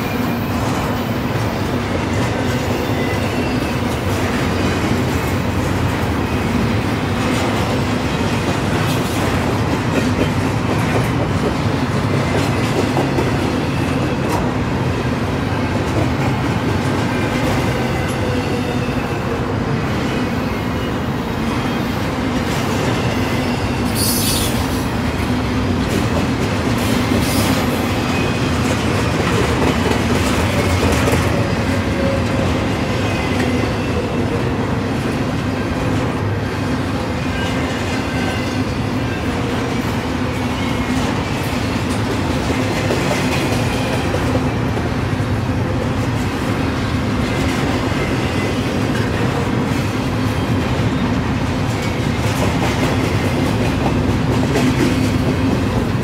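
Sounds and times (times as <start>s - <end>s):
train wheels rumbling on rails: 0.0s - 56.0s
high wheel squeals: 22.9s - 24.7s.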